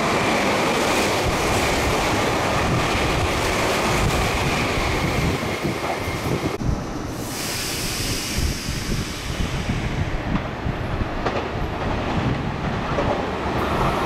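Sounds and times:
train rushing past: 0:00.0 - 0:14.0.

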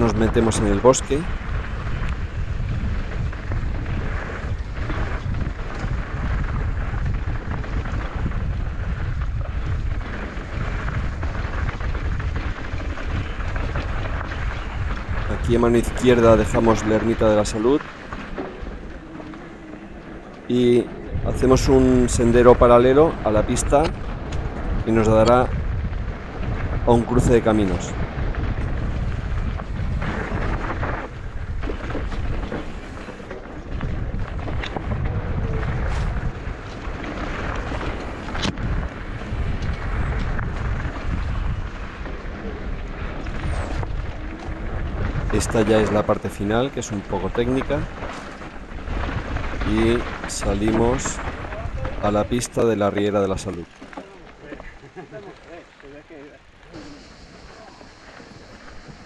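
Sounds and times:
bike rattling: 0:00.0 - 0:59.0
tyres rolling over stones: 0:00.0 - 0:59.0
wind on microphone: 0:00.0 - 0:59.0
hiss: 0:56.7 - 0:59.0.

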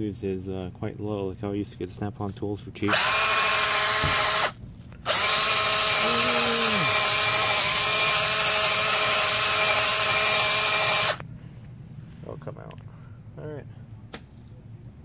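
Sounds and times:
drill wire brush scrubbing brick: 0:02.9 - 0:04.5, 0:05.1 - 0:11.2.

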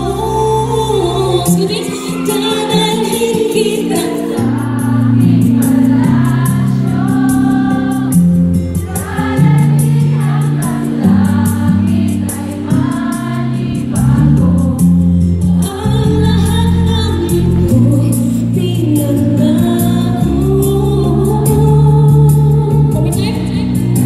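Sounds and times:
bass: 0:00.0 - 0:01.8, 0:04.6 - 0:24.0
woman singing into microphone: 0:00.0 - 0:08.2, 0:08.8 - 0:24.0
amplified band: 0:03.8 - 0:18.7
steady drum beat: 0:04.6 - 0:16.6.

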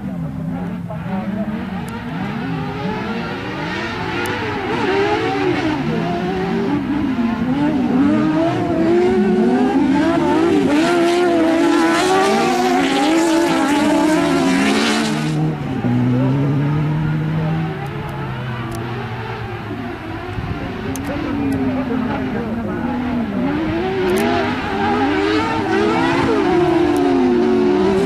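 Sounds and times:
racing car engines revving: 0:00.0 - 0:28.0.

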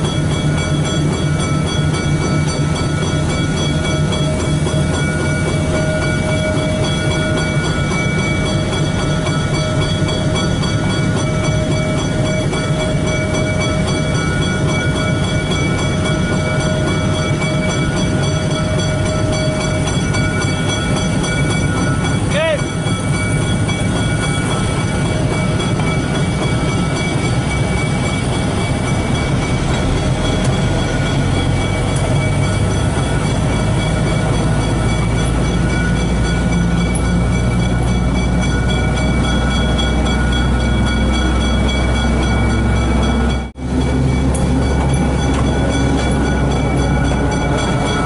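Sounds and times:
locomotive engine hum: 0:00.0 - 0:48.0
steady whining tones: 0:00.0 - 0:48.0.

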